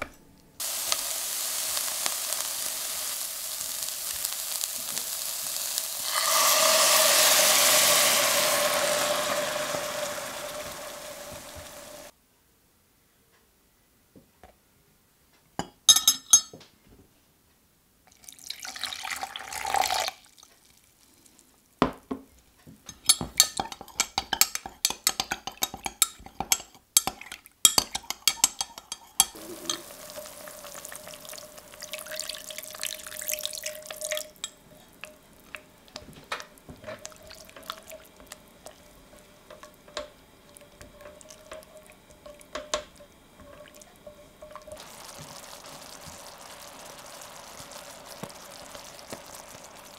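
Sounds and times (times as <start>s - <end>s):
pan bubbling and popping: 0.0s - 12.1s, 22.9s - 49.9s
water pouring: 0.6s - 12.1s, 18.1s - 20.9s, 28.0s - 49.9s
metal spoon clinking on glass jug: 15.6s - 16.6s, 22.9s - 29.9s
spatula scraping pan: 22.9s - 32.2s, 36.4s - 49.9s.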